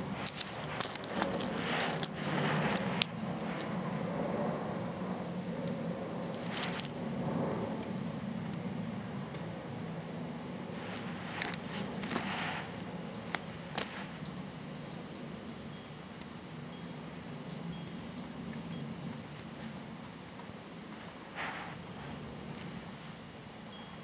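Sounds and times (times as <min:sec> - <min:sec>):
watch button clicks: 0:15.5 - 0:18.8, 0:23.5 - 0:24.0
watch alarm beeping: 0:15.5 - 0:18.9, 0:23.5 - 0:24.0.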